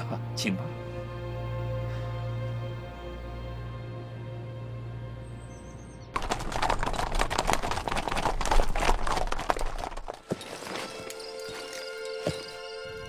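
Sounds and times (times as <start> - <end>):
soft background music: 0.0 - 6.1
galloping hoofbeats: 6.2 - 13.0.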